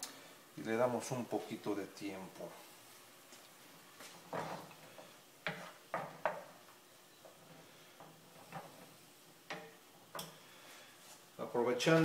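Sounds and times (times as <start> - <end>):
wooden spatula knocking on a pan: 5.4 - 6.6.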